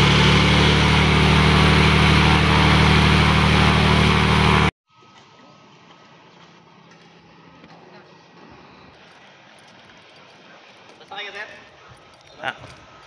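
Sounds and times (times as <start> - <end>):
airplane propeller engine running: 0.0 - 4.7.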